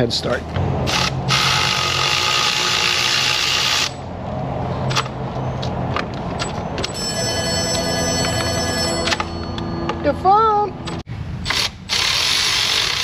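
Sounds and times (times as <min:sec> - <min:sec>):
cordless power ratchet running: 0:11.5 - 0:13.0.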